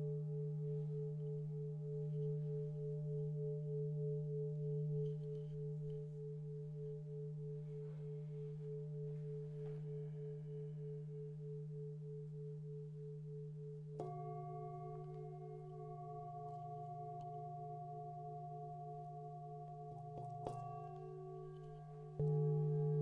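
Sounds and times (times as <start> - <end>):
singing bowls ringing: 14.0 - 23.0.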